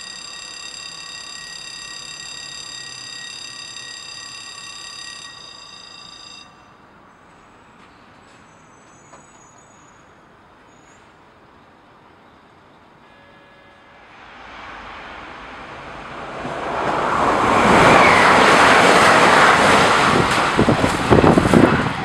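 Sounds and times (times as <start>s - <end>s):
distant road traffic hum: 6.7s - 22.0s
train passing at speed: 10.0s - 22.0s.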